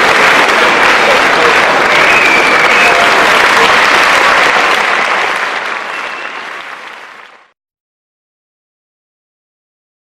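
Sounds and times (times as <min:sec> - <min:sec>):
large audience applauding: 0:00.0 - 0:07.6.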